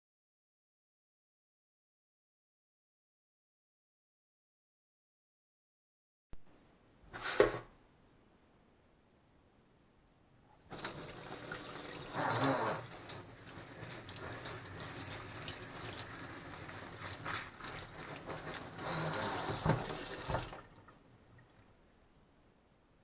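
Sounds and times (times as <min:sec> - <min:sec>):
tap water splashing into colander: 0:10.7 - 0:21.6.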